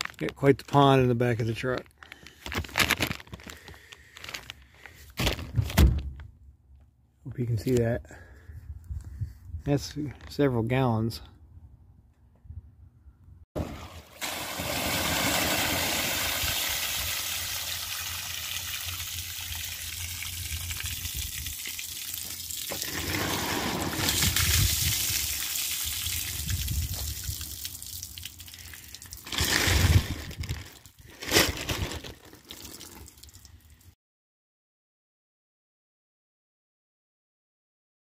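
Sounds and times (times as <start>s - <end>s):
rainwater splashing on pavement: 14.2s - 30.1s.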